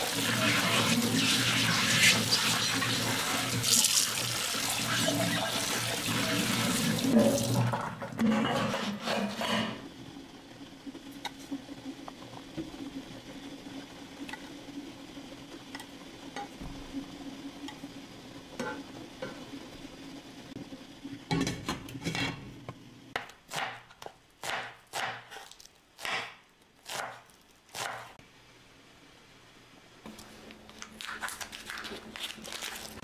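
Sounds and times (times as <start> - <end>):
utensil scraping food in pan: 8.2 - 9.8.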